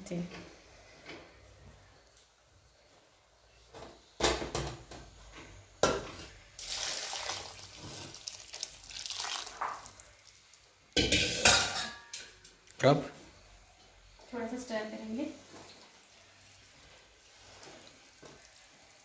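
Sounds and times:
hot water poured into pot: 6.6 - 11.6, 15.6 - 19.0.

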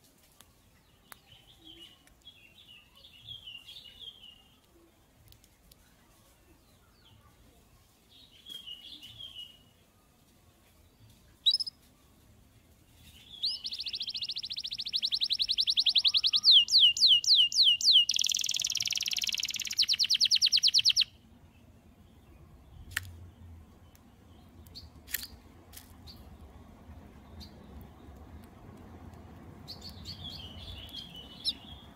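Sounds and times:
canary singing trills: 11.4 - 11.8, 13.0 - 25.0, 29.6 - 31.9
short bird chirps: 11.4 - 11.8, 13.1 - 21.1.

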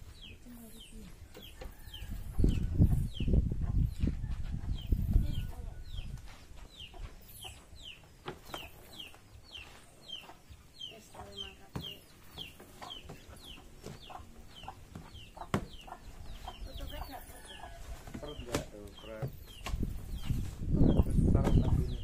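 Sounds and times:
bird chirping: 4.7 - 22.0.

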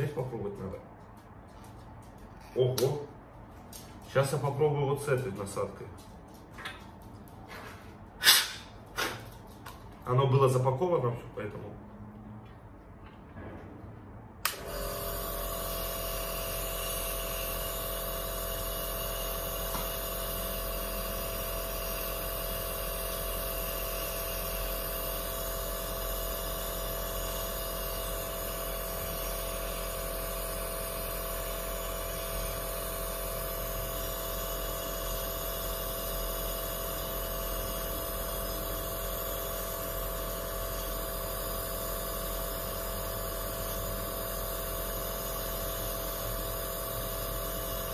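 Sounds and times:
nebulizer motor hum: 14.4 - 47.9.

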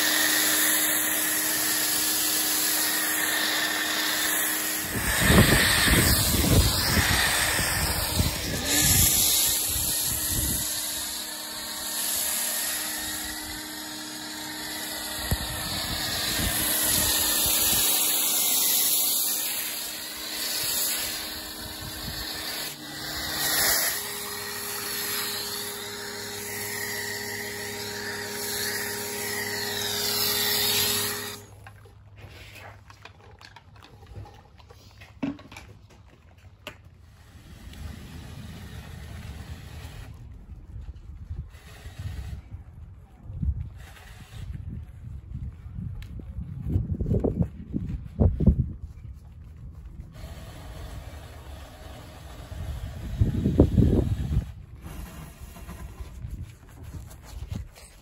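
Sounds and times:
pressure washer motor hum: 0.0 - 31.6.

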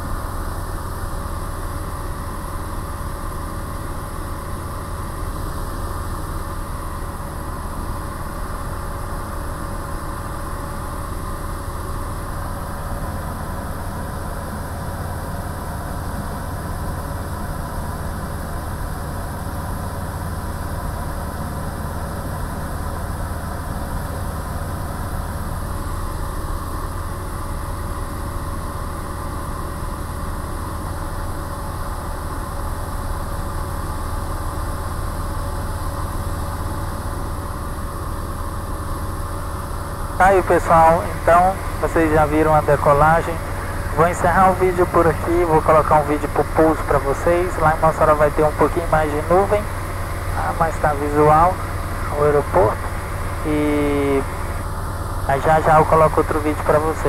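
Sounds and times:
propeller aircraft engine droning: 0.0 - 57.0.

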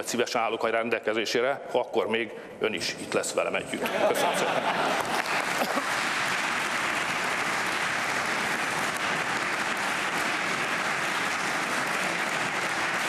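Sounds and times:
crowd applauding: 4.1 - 13.0.

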